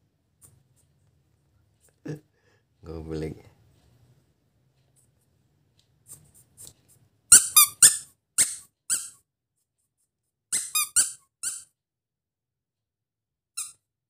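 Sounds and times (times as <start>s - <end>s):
toy mouse squeaking: 7.3s - 9.2s, 10.5s - 11.7s, 13.6s - 13.8s.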